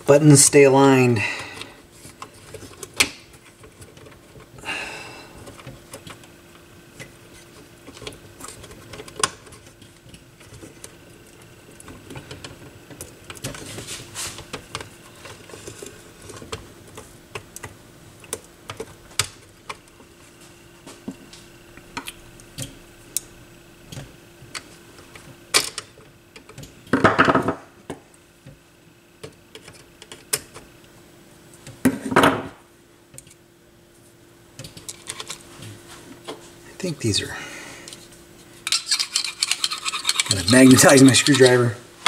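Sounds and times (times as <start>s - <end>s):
faint steady hum: 0.0s - 42.0s
hands handling circuit board: 37.9s - 41.7s.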